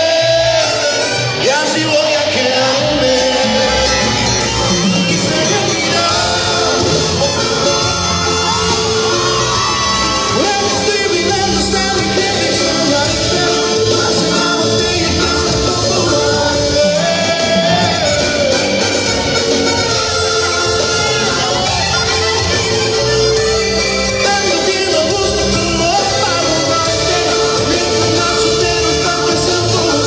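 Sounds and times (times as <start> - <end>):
man singing: 0.0 - 30.0
mariachi band playing: 0.0 - 30.0
people shouting: 2.6 - 12.6.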